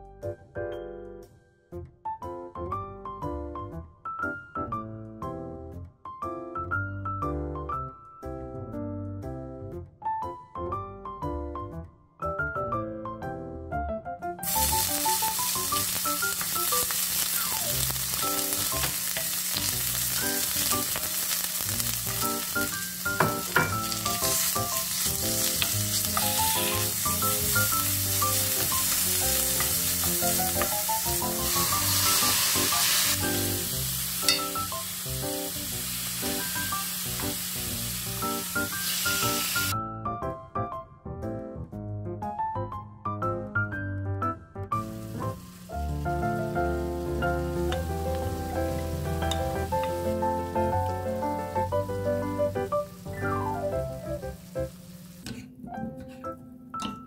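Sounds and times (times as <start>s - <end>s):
light background music: 0.0s - 57.0s
food sizzling in hot oil: 14.4s - 39.8s, 44.8s - 55.2s.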